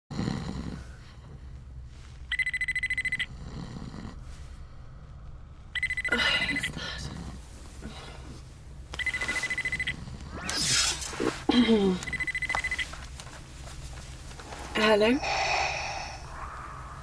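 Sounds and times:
telephone ringing: 0:02.3 - 0:03.3, 0:05.8 - 0:06.8, 0:09.0 - 0:10.1, 0:12.0 - 0:13.0.

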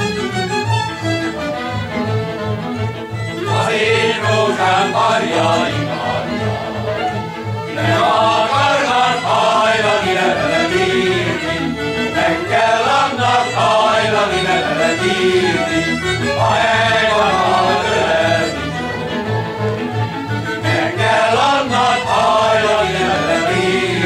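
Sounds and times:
violins playing: 0:00.0 - 0:24.0
men's choir singing: 0:03.3 - 0:24.0.

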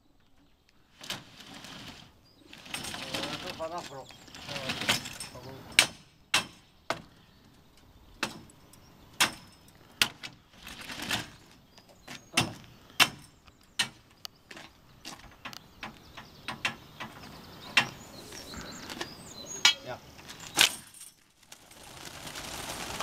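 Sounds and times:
rattling clatter: 0:01.1 - 0:06.0.

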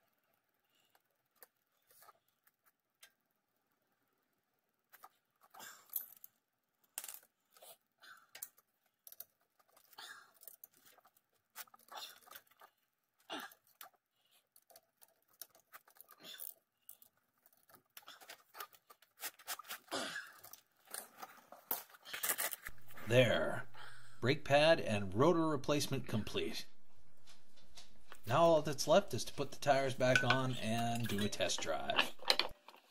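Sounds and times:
metal parts clicking and scraping: 0:13.6 - 0:19.1, 0:29.3 - 0:32.9.

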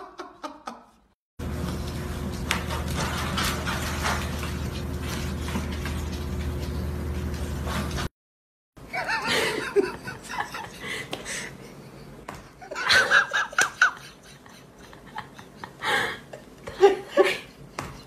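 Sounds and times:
person laughing and giggling: 0:00.0 - 0:01.1, 0:08.8 - 0:18.0.

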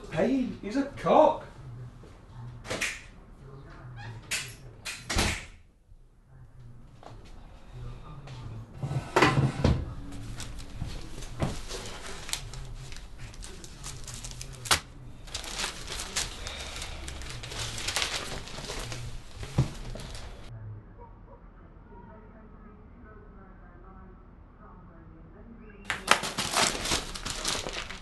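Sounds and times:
paper rustling: 0:10.1 - 0:20.5, 0:25.9 - 0:28.0.

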